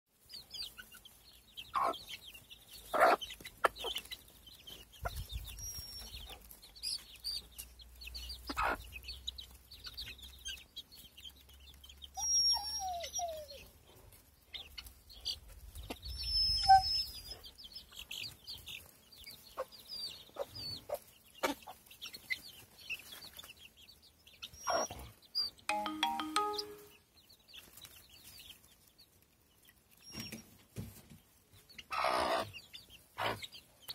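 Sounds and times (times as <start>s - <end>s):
chicks peeping: 0.2s - 12.6s, 13.4s - 33.9s
hens clucking: 0.6s - 5.3s, 8.3s - 11.0s, 17.4s - 22.6s, 31.8s - 33.8s.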